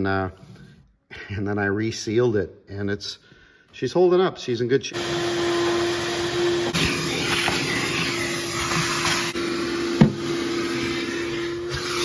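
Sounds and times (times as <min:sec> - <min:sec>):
shop vacuum motor whine: 0:04.9 - 0:12.0.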